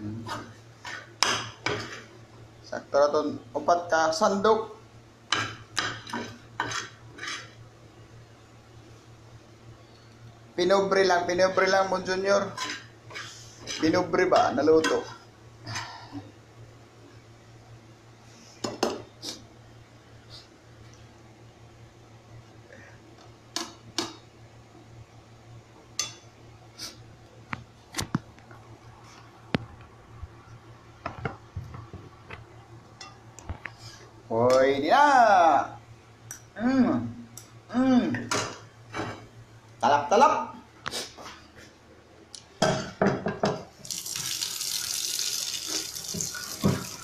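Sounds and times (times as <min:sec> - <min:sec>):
tap running into pan: 0:45.7 - 0:47.0.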